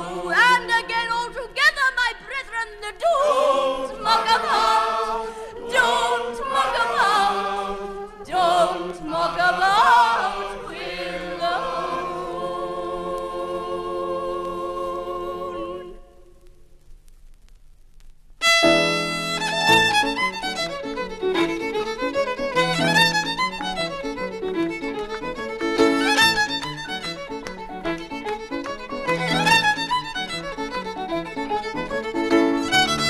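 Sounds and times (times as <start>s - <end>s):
group singing unaccompanied: 0.0s - 0.9s, 3.0s - 16.1s.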